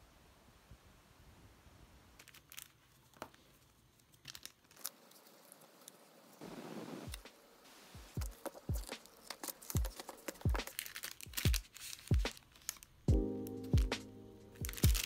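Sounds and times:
papery rustle: 0:02.2 - 0:07.2, 0:08.2 - 0:13.1, 0:14.6 - 0:15.0.

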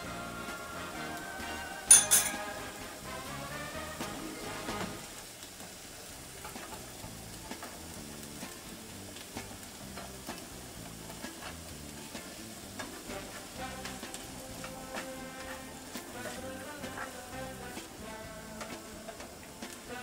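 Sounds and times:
vegetables sizzling in a pan: 0:00.0 - 0:20.0
spoon clicking and scraping pan: 0:01.9 - 0:02.6.

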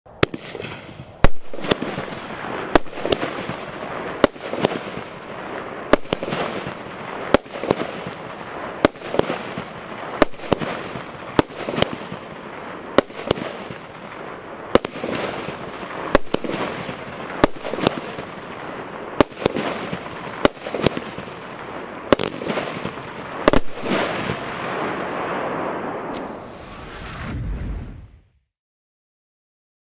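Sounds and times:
firework reports: 0:00.1 - 0:28.5
firework hiss: 0:26.0 - 0:28.4.

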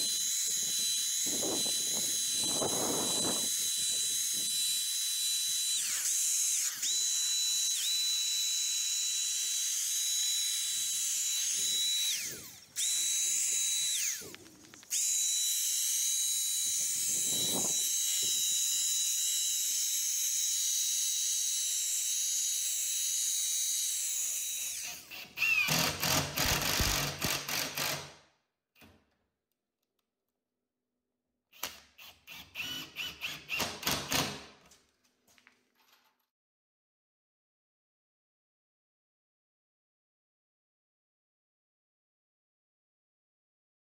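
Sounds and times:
cordless driver driving screws: 0:00.0 - 0:19.9, 0:22.6 - 0:28.1, 0:31.6 - 0:34.5
paint sprayer hissing and whining: 0:00.0 - 0:27.1.

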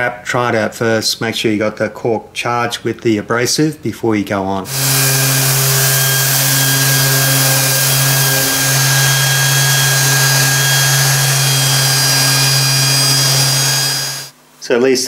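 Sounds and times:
orbital sander on metal: 0:04.7 - 0:14.3.

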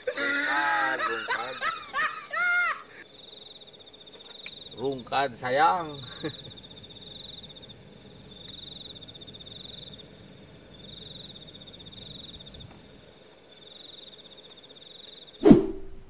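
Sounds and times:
high pulsed frog or insect trill: 0:03.0 - 0:15.4.

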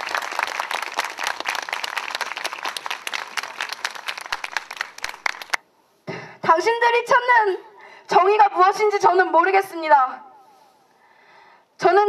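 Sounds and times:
crowd applauding: 0:00.0 - 0:05.6.

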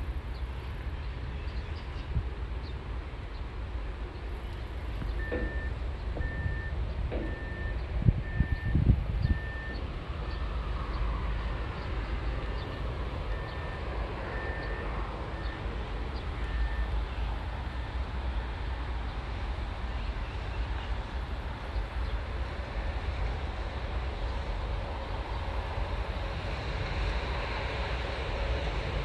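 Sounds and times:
dull low thumps: 0:04.9 - 0:09.8
vehicle reversing alarm beeping: 0:05.2 - 0:10.4, 0:12.6 - 0:17.0.

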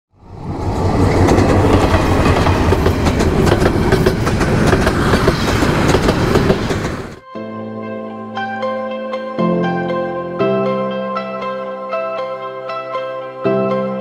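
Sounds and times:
train wheels clattering on rails: 0:00.5 - 0:07.2.

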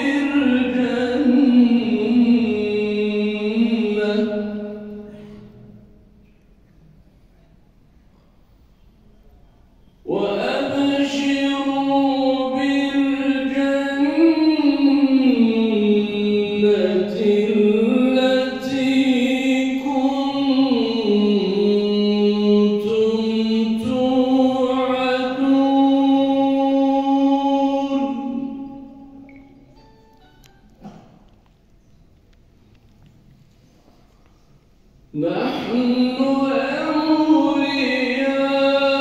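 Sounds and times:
man chanting over loudspeakers: 0:00.0 - 0:06.0, 0:10.0 - 0:29.2, 0:35.1 - 0:39.0.

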